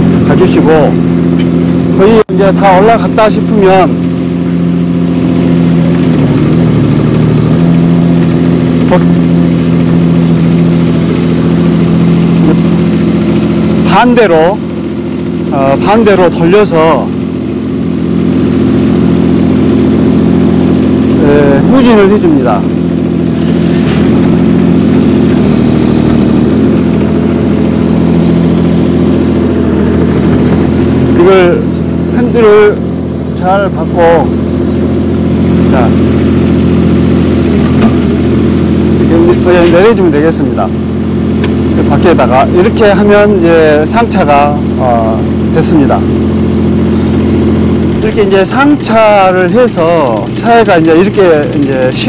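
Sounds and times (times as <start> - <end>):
excavator diesel engine running: 0.0 - 52.0
hydraulics moving boom: 21.7 - 40.4.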